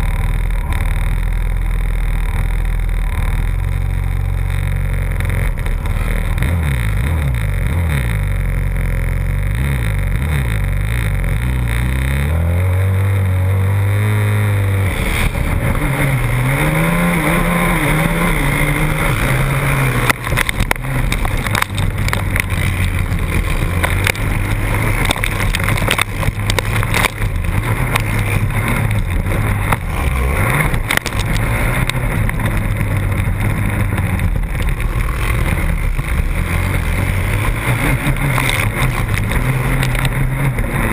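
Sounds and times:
quad engine revving: 0.0s - 40.9s
dirt and stones clattering: 18.1s - 40.2s.

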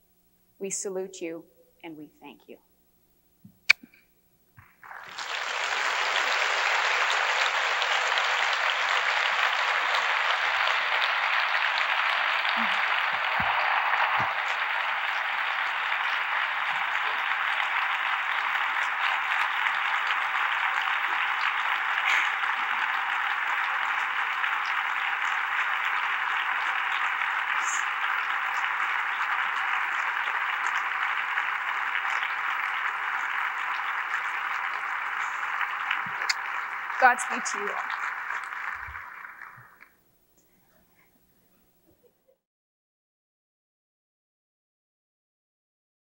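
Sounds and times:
audience applauding: 4.6s - 39.9s.

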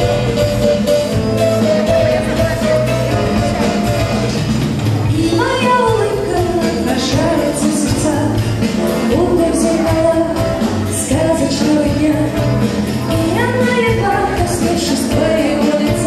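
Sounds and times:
keyboard with steady beat: 0.0s - 16.0s
women singing: 5.1s - 16.0s.

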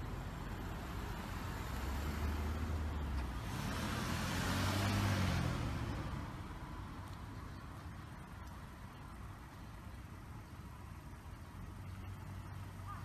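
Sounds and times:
car passing by loudly: 0.0s - 6.8s
cars driving past: 0.0s - 13.0s.

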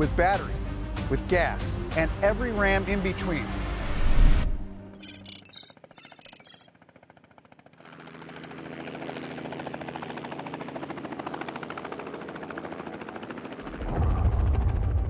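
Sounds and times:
helicopter rotor chopping: 5.8s - 15.0s
deep low rumble: 13.7s - 15.0s.

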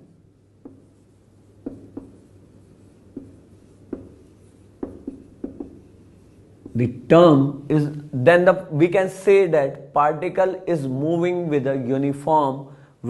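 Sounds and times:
marker rubbing on whiteboard: 0.0s - 6.9s
marker tip tapping board: 0.6s - 1.0s, 1.6s - 6.0s, 6.6s - 6.8s.

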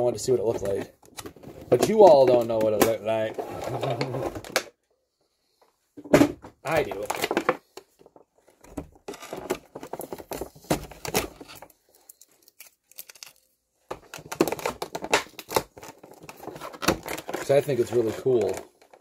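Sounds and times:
packaging tearing and crinkling: 9.2s - 13.6s.

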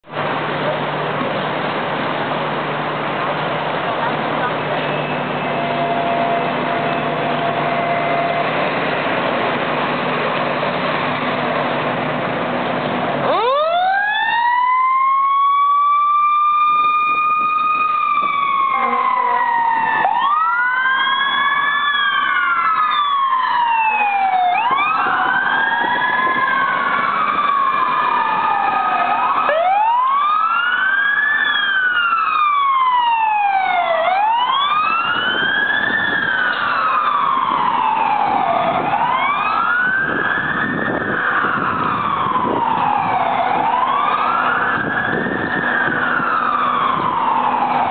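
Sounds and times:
rumble of engines and traffic: 0.0s - 47.9s
fire truck sirens wailing: 0.1s - 47.9s.

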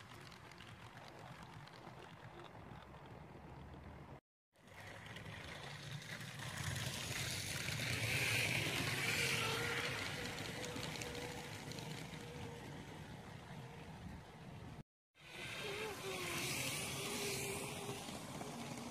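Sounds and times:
toy train rolling on plastic track: 0.0s - 3.0s, 4.6s - 13.1s, 15.2s - 18.9s.

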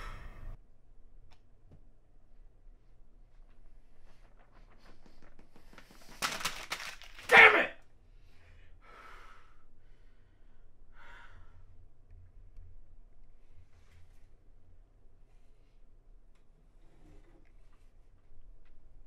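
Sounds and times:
rush of breath: 8.2s - 11.8s.

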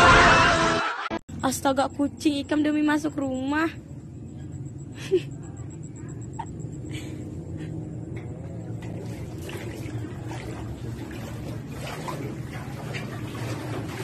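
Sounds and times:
steady low hum: 1.3s - 14.0s
water sloshing: 8.2s - 14.0s.

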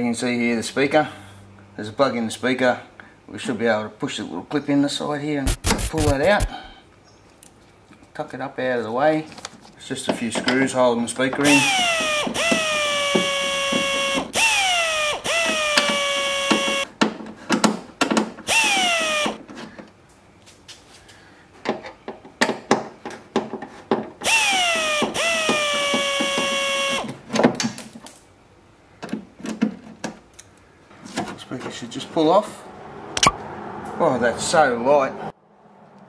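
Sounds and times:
electric screwdriver whirring: 5.5s - 6.7s, 11.5s - 16.9s, 18.5s - 19.4s, 24.2s - 27.2s.

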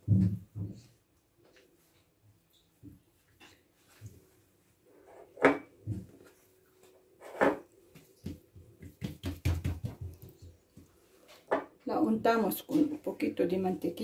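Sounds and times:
hands patting and tapping dough: 7.8s - 10.9s.

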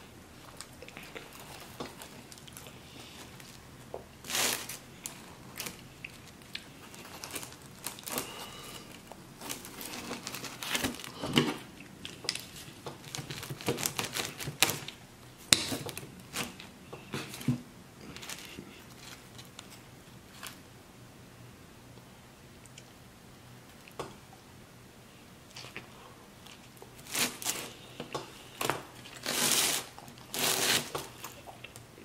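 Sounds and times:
pizza tearing and crackling: 4.2s - 11.2s, 11.8s - 20.6s, 26.4s - 27.8s, 28.6s - 31.8s.

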